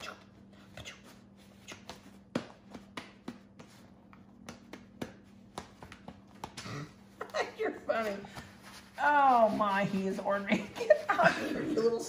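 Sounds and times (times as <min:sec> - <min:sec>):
low electrical hum: 0:00.0 - 0:12.0
paper towels rustling: 0:07.8 - 0:12.0.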